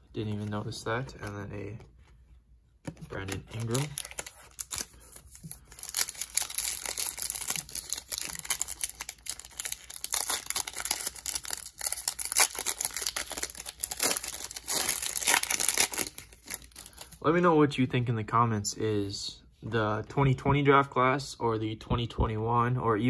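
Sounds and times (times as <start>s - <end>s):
foil wrapper crinkling and tearing: 3.1s - 17.2s.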